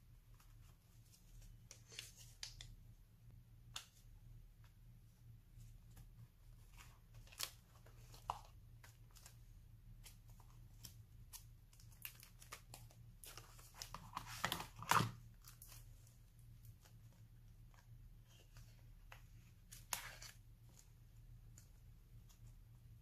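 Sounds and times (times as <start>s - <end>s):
plastic sleeve pages crinkling: 5.9s - 22.6s.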